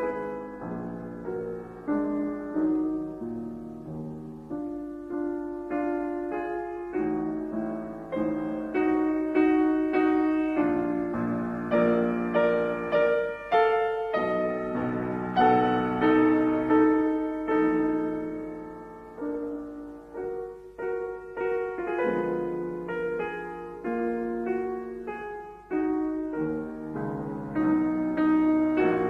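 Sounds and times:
slow gentle piano melody: 0:00.0 - 0:29.0.

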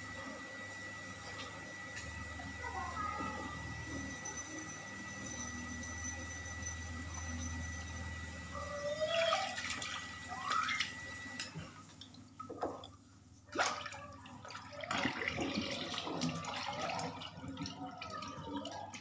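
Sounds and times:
tap water running and splashing: 0:08.8 - 0:19.0.

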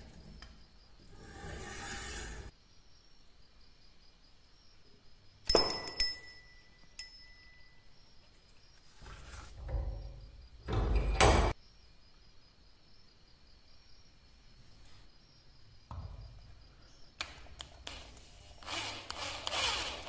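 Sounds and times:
small metal bell ringing: 0:05.5 - 0:07.9.

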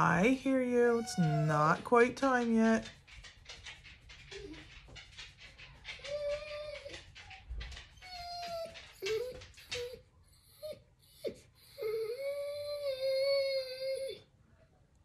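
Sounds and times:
dog whining: 0:00.8 - 0:01.9, 0:05.8 - 0:14.3.

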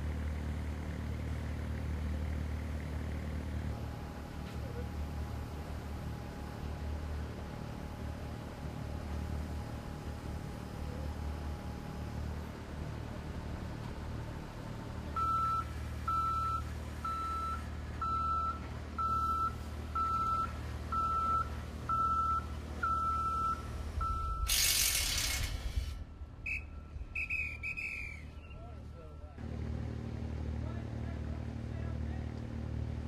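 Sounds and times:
low engine rumble: 0:00.0 - 0:33.0
machinery warning alarm beeping: 0:15.2 - 0:24.6
short hiss: 0:24.5 - 0:26.1.

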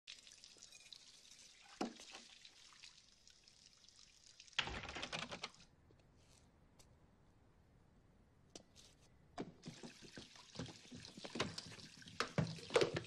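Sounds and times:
dishes clattering and splashing: 0:09.6 - 0:13.0
water running into sink: 0:09.6 - 0:13.0.

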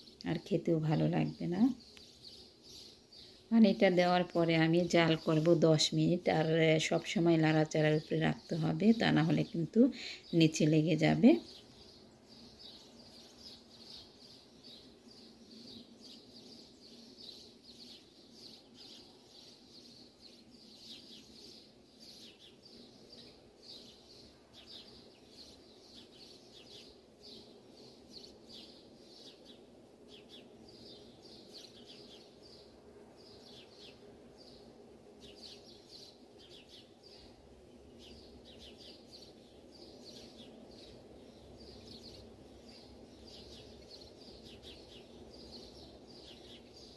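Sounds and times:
low steady hum: 0:00.0 - 0:46.9.

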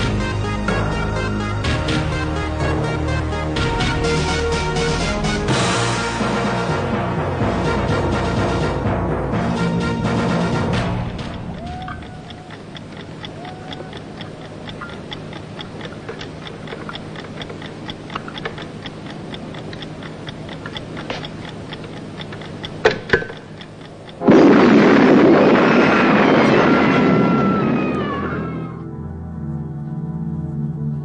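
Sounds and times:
clock-like ticking: 0:10.0 - 0:25.6
sharp clicks: 0:11.0 - 0:25.7
loud burst of noise: 0:24.2 - 0:28.8.

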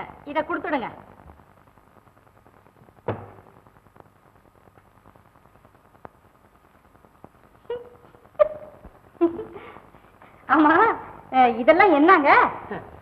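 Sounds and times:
film soundtrack hiss: 0:00.0 - 0:13.0
dull knock: 0:03.0 - 0:03.4.

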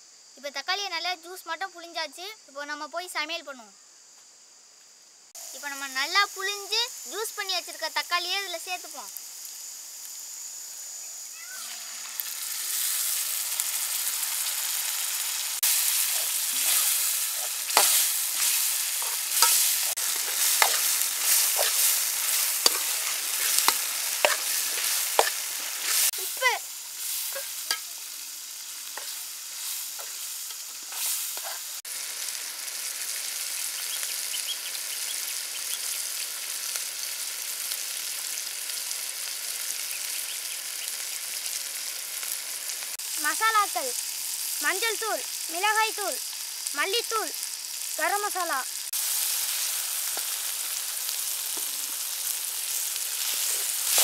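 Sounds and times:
food sizzling in a metal pot: 0:00.0 - 0:54.0
spoon scraping and knocking pot: 0:16.1 - 0:26.1.

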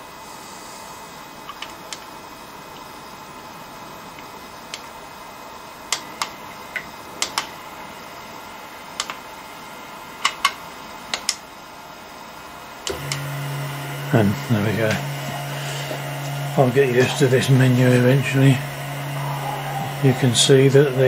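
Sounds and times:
stepper motor humming: 0:12.9 - 0:21.0.

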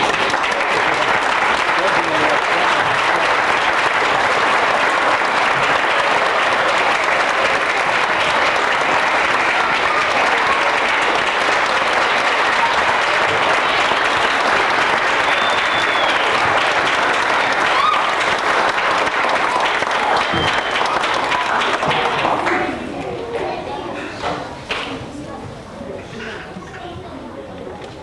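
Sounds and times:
audience applauding: 0:00.0 - 0:22.9.

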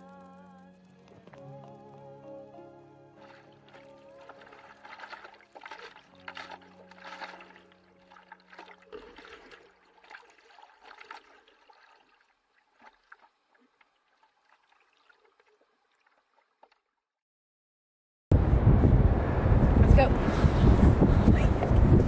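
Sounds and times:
water splashing and trickling: 0:03.2 - 0:17.1.

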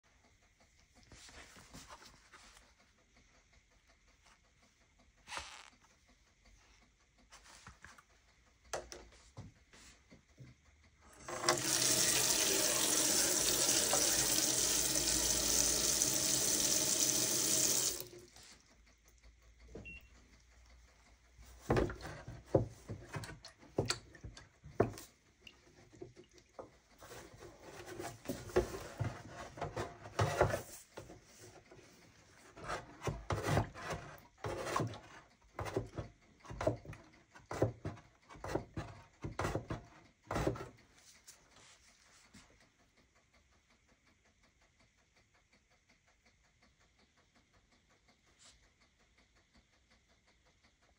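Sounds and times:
tap water running into sink: 0:11.1 - 0:18.4, 0:21.6 - 0:30.7.

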